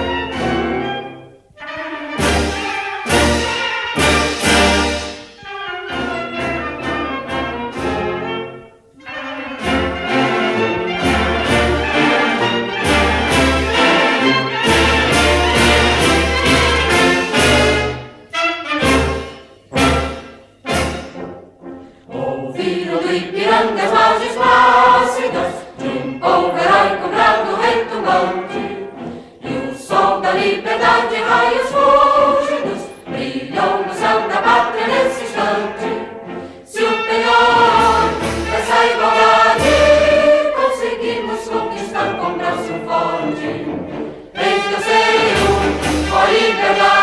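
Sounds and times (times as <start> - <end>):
orchestral backing: 0.0 - 47.0
choir singing anthems: 9.0 - 18.4, 19.0 - 47.0.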